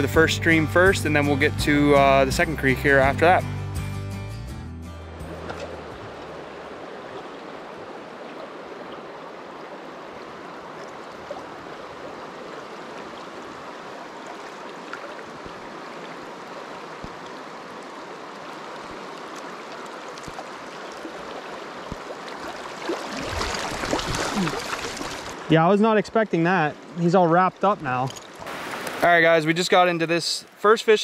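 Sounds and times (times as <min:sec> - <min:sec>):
creek water rushing over rocks: 0:05.2 - 0:29.9.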